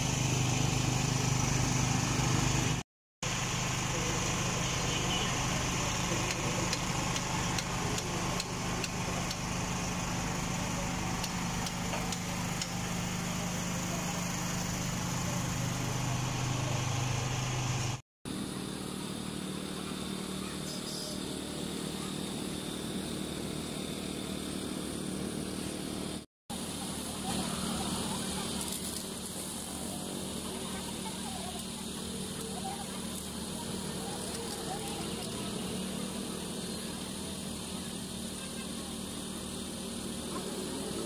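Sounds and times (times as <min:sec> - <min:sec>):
steady engine hum: 0:00.0 - 0:41.0
street noise: 0:00.0 - 0:41.0
faint voices: 0:26.6 - 0:41.0.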